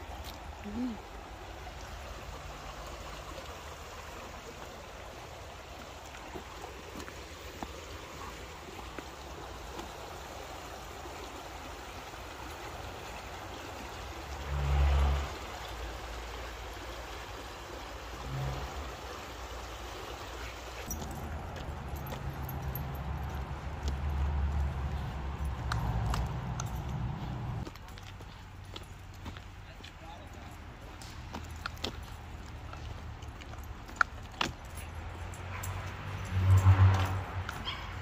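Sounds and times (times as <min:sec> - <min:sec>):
water rushing over stones: 0:00.0 - 0:26.0.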